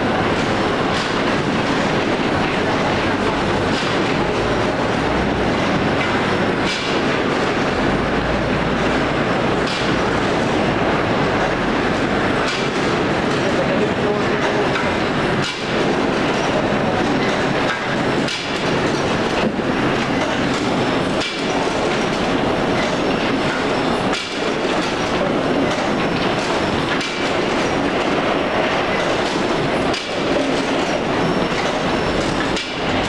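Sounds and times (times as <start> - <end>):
conveyor machinery clatter: 0.0 - 33.0.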